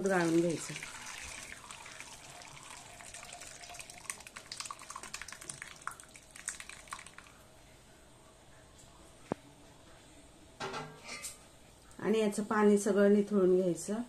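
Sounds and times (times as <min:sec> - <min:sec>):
whey dripping through strainer: 0:00.0 - 0:07.4.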